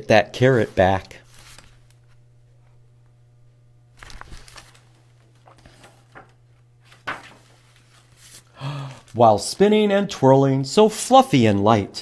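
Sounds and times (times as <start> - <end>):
book pages rustling and turning: 0.4 - 2.3, 4.0 - 9.2.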